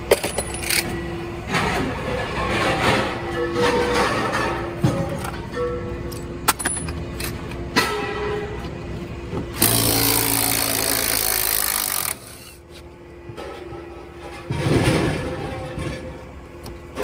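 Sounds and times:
impact wrench running: 9.6 - 12.5.

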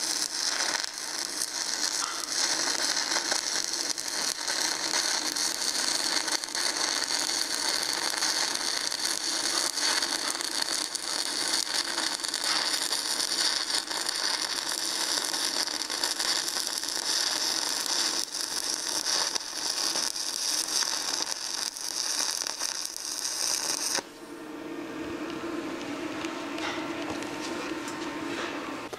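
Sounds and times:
welding arc crackling: 0.0 - 24.1.

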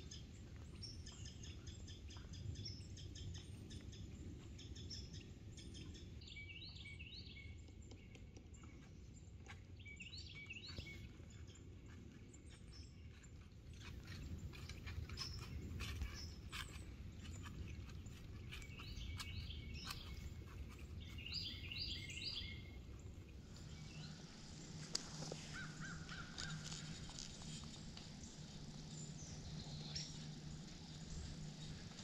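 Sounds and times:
deer footsteps on dry leaves: 13.8 - 32.0.

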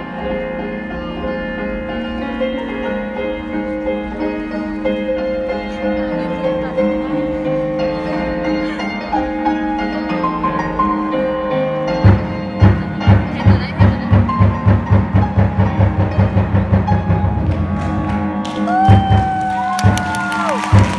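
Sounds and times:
steady drum beat: 12.0 - 20.9.

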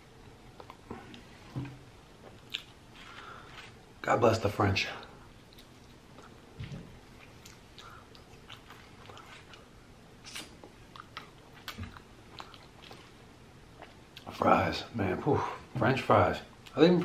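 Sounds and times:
chewing mouth clicks: 7.2 - 9.6, 10.2 - 13.0.

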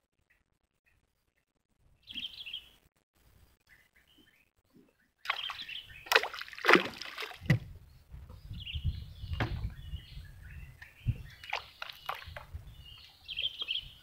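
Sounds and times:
small birds chirping: 0.1 - 14.0
water splashing against wooden boat: 5.2 - 7.8, 11.3 - 12.6.

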